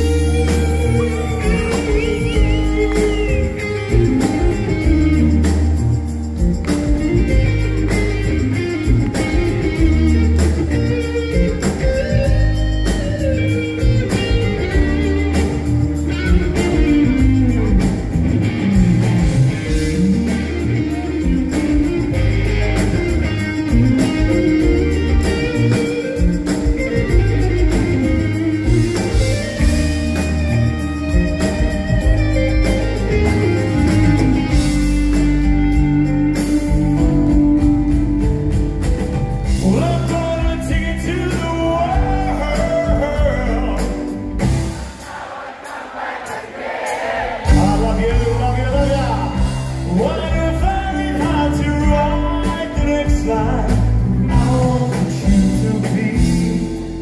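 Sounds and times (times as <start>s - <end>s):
electric guitar lead: 0.0s - 44.9s
bass guitar: 0.0s - 45.0s, 47.4s - 57.0s
drums: 0.0s - 57.0s.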